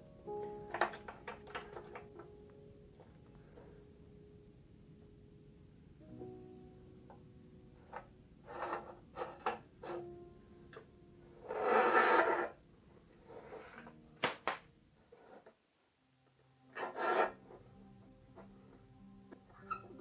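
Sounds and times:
metal table knocks and clunks: 0.7 - 2.2
long scraping rub: 8.4 - 10.0, 11.4 - 12.6, 16.8 - 17.6.

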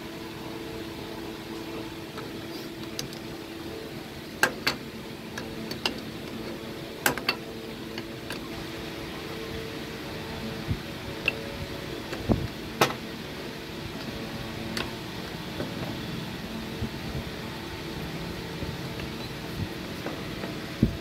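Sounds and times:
machine mechanical hum: 0.0 - 21.0
sharp clicks and knocks: 4.4 - 4.8, 7.0 - 8.5.

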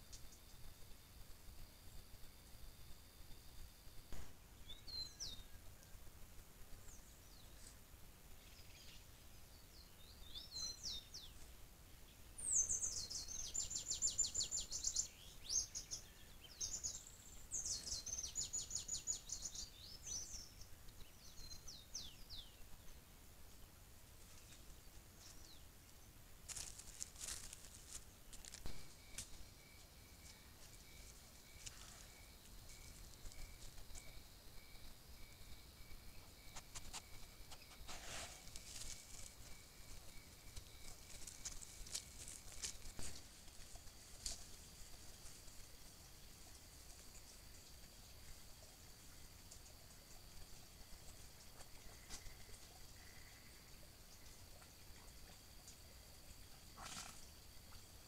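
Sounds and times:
songbirds calling: 3.7 - 58.0
faint steady high tone: 24.2 - 56.6.

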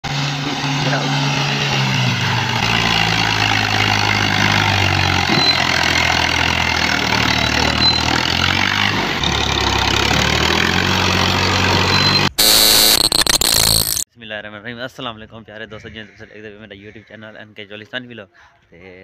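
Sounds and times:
tractor diesel engine under load: 0.1 - 12.3.

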